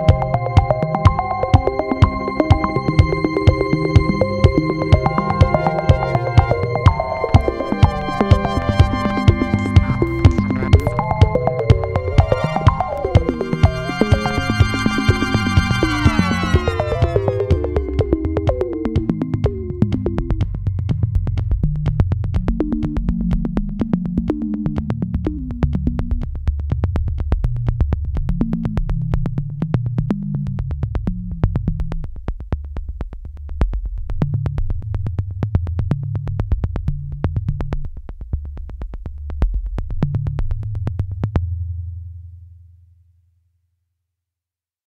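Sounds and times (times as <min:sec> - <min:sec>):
electronic music with steady beat: 0:00.0 - 0:20.5.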